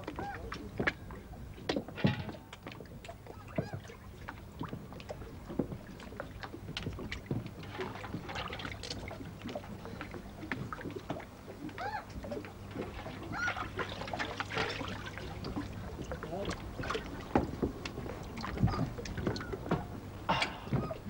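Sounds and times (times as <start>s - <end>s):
knocks and clatter on wooden deck: 1.7s - 2.5s
water splashing in metal bucket: 7.6s - 9.2s, 12.8s - 15.8s.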